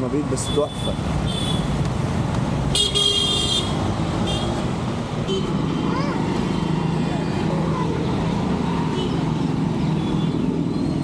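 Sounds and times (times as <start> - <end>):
traffic engines running: 0.0 - 11.0
vehicle horn honks: 2.8 - 3.7.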